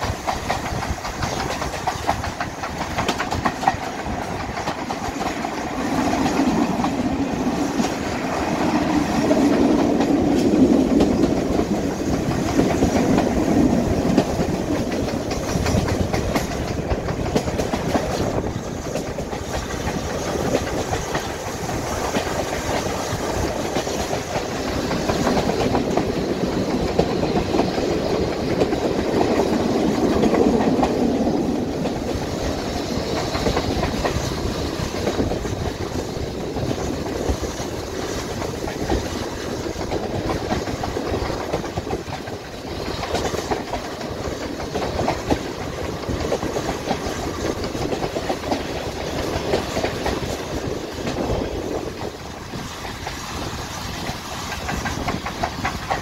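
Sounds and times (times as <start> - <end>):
train wheels rumbling on track: 0.0 - 56.0
irregular clatter: 9.3 - 31.0.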